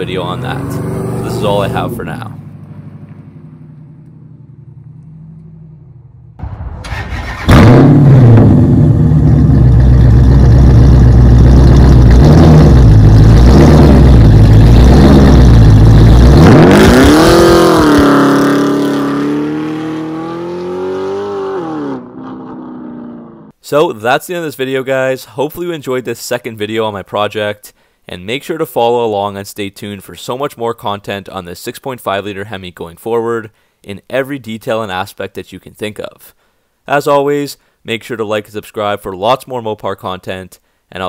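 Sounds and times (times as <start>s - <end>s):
car accelerating away: 0.0s - 23.5s
car engine revving: 0.0s - 23.5s.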